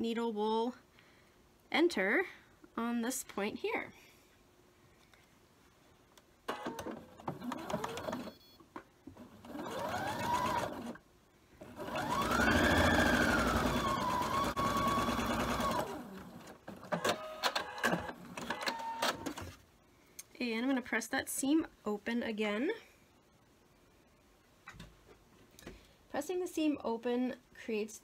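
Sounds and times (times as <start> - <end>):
sewing machine stitching: 6.5 - 8.4, 9.2 - 11.0, 11.6 - 19.4.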